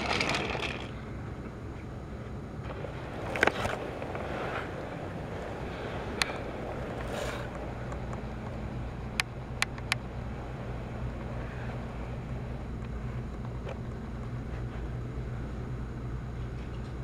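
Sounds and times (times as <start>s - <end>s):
toy train motor humming: 0.0s - 1.0s
sharp clicks: 7.5s - 10.0s.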